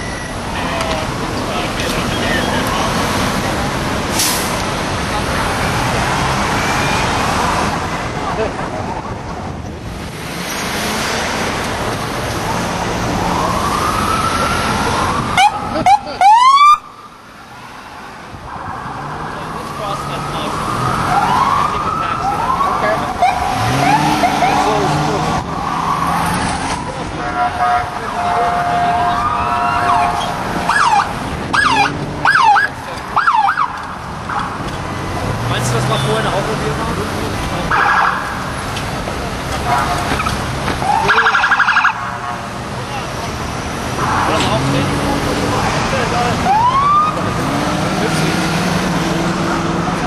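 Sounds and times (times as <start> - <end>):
street traffic noise: 0.0 - 50.0
police car siren wailing: 13.0 - 17.2, 18.3 - 34.7, 37.6 - 38.7, 39.6 - 42.4, 46.0 - 47.5.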